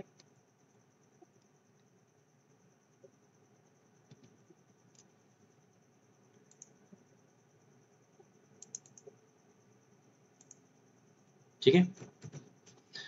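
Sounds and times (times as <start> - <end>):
faint computer mouse clicks: 6.4 - 6.8, 8.6 - 9.2, 10.4 - 10.6.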